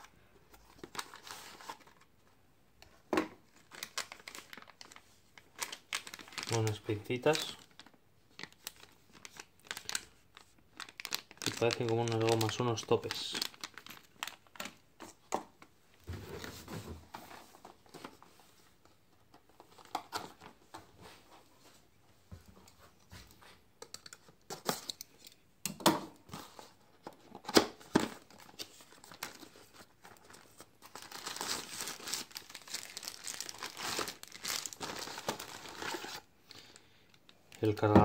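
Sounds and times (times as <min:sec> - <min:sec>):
plastic bags crinkling: 0:03.4 - 0:15.6, 0:28.0 - 0:38.0.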